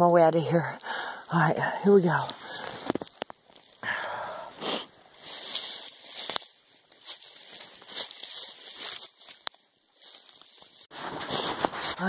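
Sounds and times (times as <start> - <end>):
twigs snapping: 2.1 - 3.8, 5.2 - 10.9
footsteps crunching dry leaves: 2.2 - 12.0.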